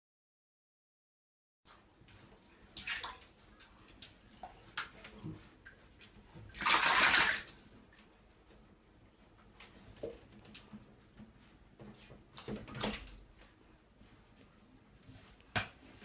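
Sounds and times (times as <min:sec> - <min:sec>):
bath water splashing: 0:02.6 - 0:07.8.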